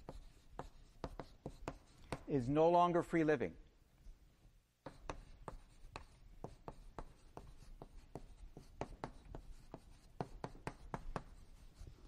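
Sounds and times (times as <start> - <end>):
chalk tapping on board: 0.0 - 2.3, 4.8 - 12.0.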